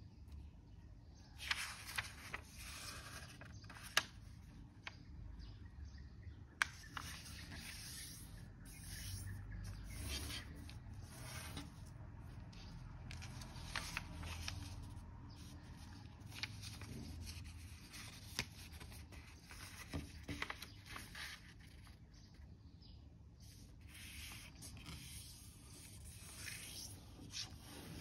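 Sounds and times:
paper rubbing and rustling: 1.4 - 4.2, 6.6 - 11.9, 12.5 - 21.9
paper crackling: 1.4 - 5.0, 6.6 - 22.0.

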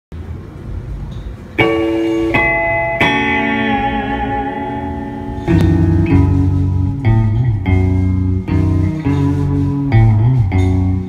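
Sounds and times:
electric guitar chords: 1.6 - 11.0
rock band playing: 1.7 - 9.0
deep bass notes: 3.8 - 11.0.

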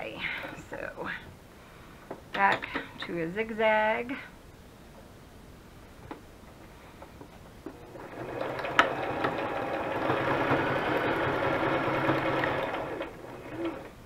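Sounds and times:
sewing machine stitching: 7.7 - 14.0.

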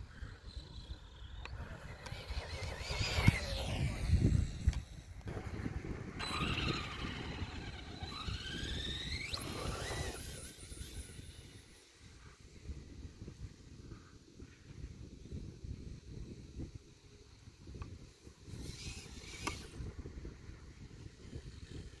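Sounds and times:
rc truck motor whining: 0.0 - 13.4, 15.0 - 22.0.

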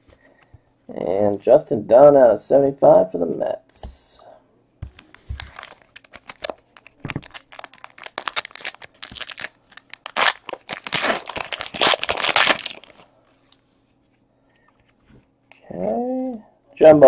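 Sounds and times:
foil wrapper crinkling: 5.2 - 13.1.

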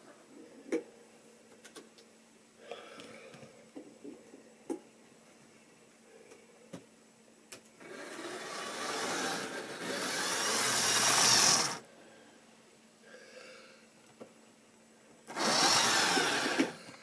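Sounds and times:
model train motor whirring: 7.8 - 11.8, 15.3 - 16.8.

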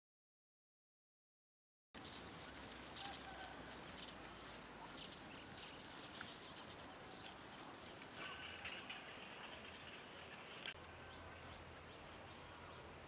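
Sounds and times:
high insect drone: 2.0 - 10.7
faint chirps and squeaks: 2.0 - 12.8.

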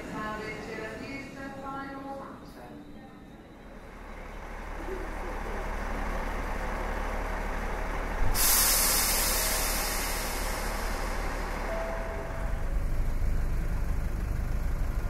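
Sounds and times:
train low rumble: 0.0 - 15.0
air brakes hissing: 5.8 - 13.3.

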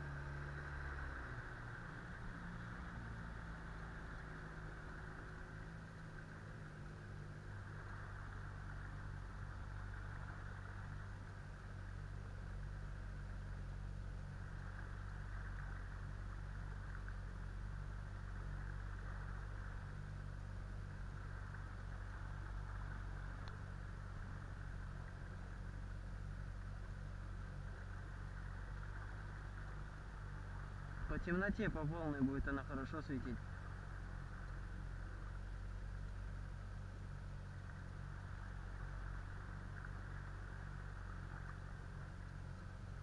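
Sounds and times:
outboard motor droning: 0.0 - 43.0.

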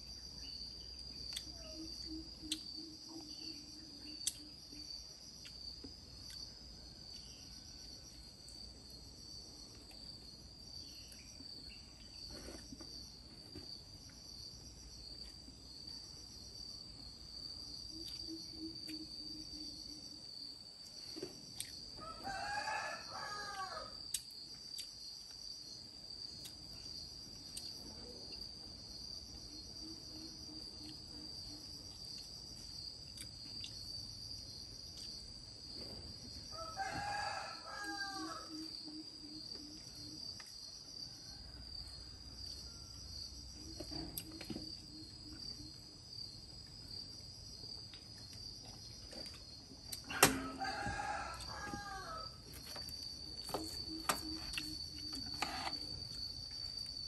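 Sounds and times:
rooster crowing: 22.0 - 24.0, 36.5 - 38.7, 50.0 - 52.7.

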